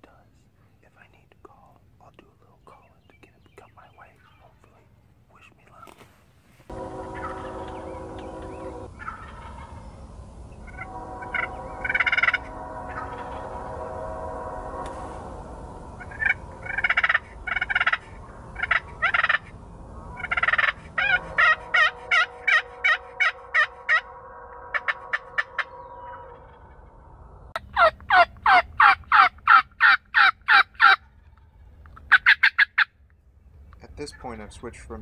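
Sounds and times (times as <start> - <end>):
turkey gobbling: 7.0 - 9.9, 10.6 - 13.4, 16.0 - 19.5, 20.2 - 24.1, 24.7 - 26.8, 27.6 - 32.9
turkey friction call yelps: 20.2 - 24.1, 27.6 - 31.1, 31.8 - 32.9.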